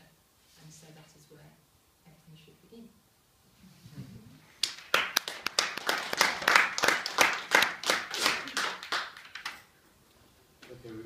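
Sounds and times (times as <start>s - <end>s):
audience applause: 4.6s - 9.6s.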